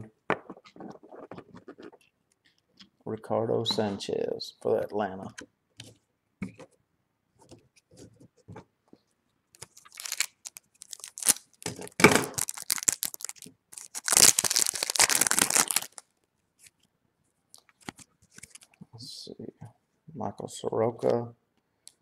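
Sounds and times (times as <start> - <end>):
foil wrapper tearing and crinkling: 9.6 - 16.0.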